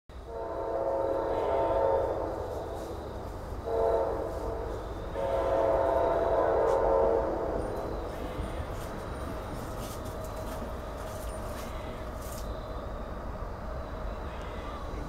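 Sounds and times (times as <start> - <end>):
locomotive air horn blasts: 0.2 - 8.8.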